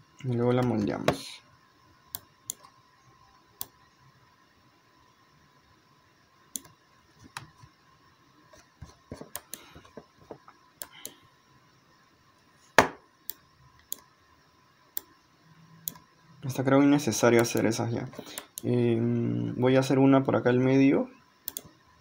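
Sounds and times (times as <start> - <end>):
faint steady hum: 0.0 - 22.0
computer mouse and keyboard clicks: 8.6 - 10.0.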